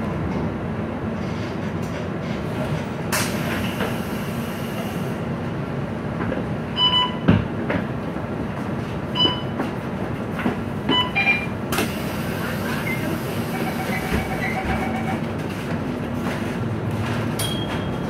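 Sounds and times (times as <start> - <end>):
bus door opening with air hiss: 1.2 - 5.2, 11.7 - 14.6
bus diesel engine idling: 2.2 - 5.9, 8.3 - 17.2
card reader beeps: 10.9 - 11.5, 13.6 - 15.2.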